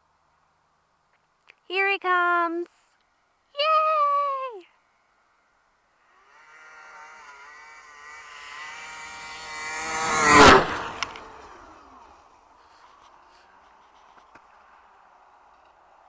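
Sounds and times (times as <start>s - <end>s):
snowmobile engine passing by: 5.9s - 13.6s.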